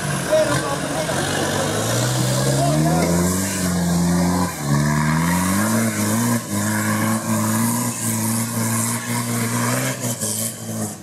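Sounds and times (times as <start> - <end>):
engine revving hard: 0.0 - 11.0.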